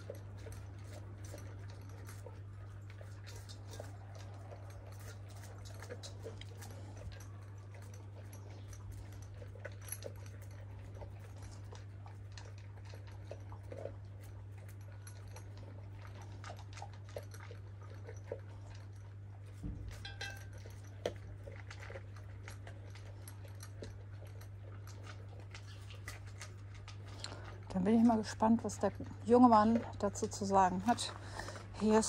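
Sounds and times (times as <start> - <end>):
dogs crunching food: 0.0 - 32.0
steady low hum: 0.0 - 32.0
clicks against bowls: 19.8 - 21.9.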